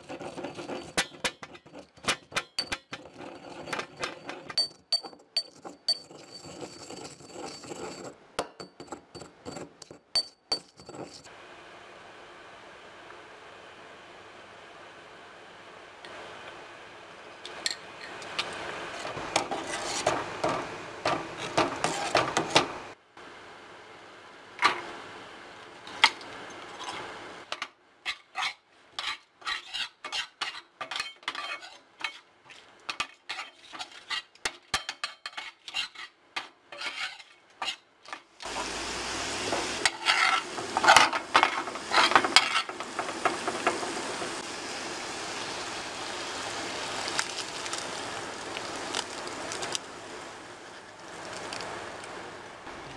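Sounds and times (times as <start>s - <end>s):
utensil stirring and clinking on metal: 0.0s - 11.3s, 28.1s - 38.2s, 39.5s - 44.4s
food sizzling in a frying pan: 36.7s - 52.7s.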